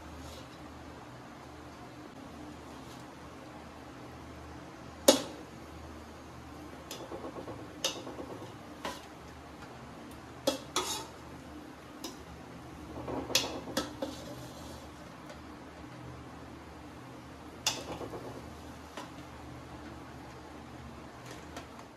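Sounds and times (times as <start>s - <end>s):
cutlery scraping cookware: 10.5s - 11.2s, 13.1s - 14.8s.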